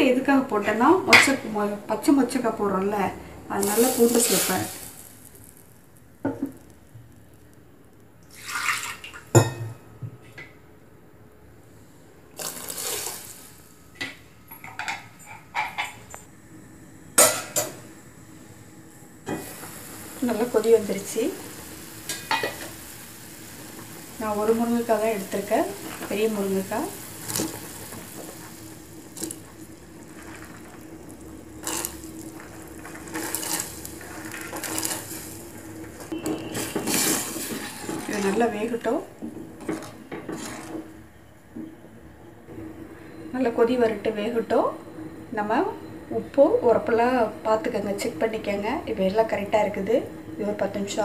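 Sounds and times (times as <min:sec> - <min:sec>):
steady low hum: 0:00.0 - 0:08.4, 0:09.4 - 0:51.0
liquid pouring into a pot: 0:08.2 - 0:09.4.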